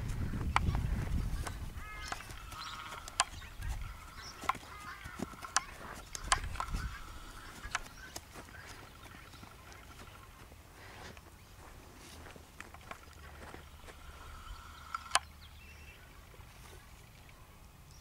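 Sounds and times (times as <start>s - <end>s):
hooves on grass: 0.0s - 17.4s
faint chattering animal call: 1.3s - 10.2s.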